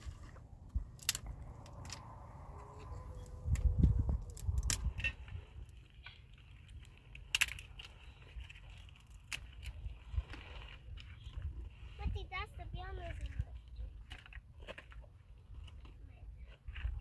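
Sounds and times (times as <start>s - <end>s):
wind rumbling on microphone: 0.0s - 6.9s, 15.5s - 17.0s
hands handling dry sticks: 0.0s - 11.8s.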